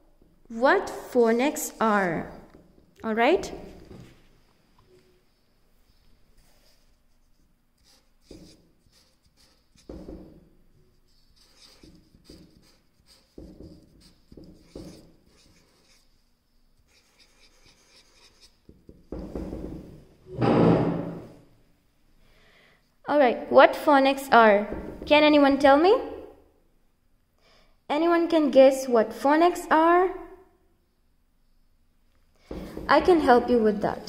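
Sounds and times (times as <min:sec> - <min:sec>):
marker pen scratching on paper: 0:06.4 - 0:10.2, 0:10.8 - 0:19.1.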